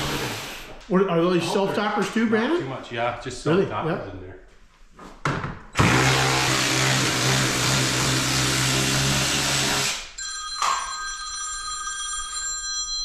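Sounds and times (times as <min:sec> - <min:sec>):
cordless drill whining: 0:05.8 - 0:10.1
phone ringing: 0:10.2 - 0:13.0.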